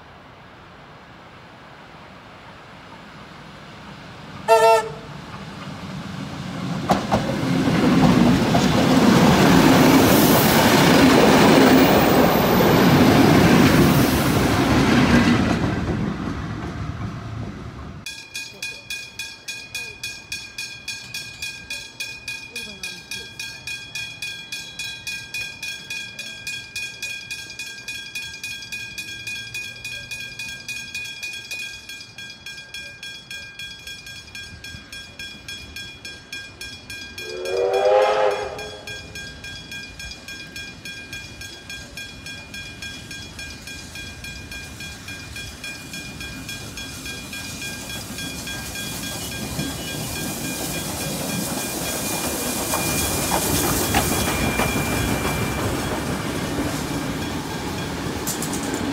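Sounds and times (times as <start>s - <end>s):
steam locomotive passing: 0.0s - 58.9s
steam whistle blast: 4.5s - 5.1s, 37.2s - 39.0s
level crossing bells ringing: 18.1s - 58.9s.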